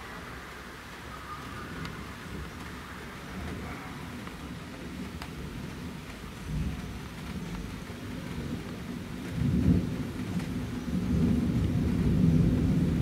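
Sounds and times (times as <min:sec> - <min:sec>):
steady rain: 0:00.0 - 0:13.0
rolling thunder: 0:03.3 - 0:13.0.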